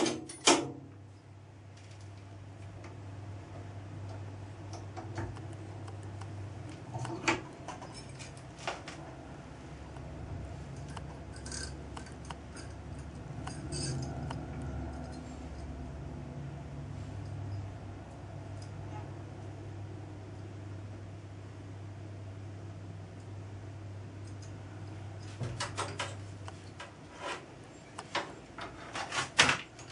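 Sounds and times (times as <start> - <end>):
low steady hum: 0.0 - 29.9
metal parts clicking and clinking: 10.8 - 15.7.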